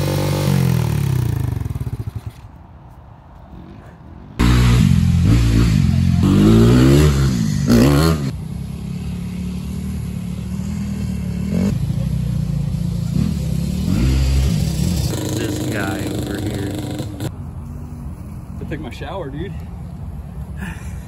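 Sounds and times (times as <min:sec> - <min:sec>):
dirt bike engine revving: 0:00.0 - 0:02.2, 0:04.4 - 0:17.3.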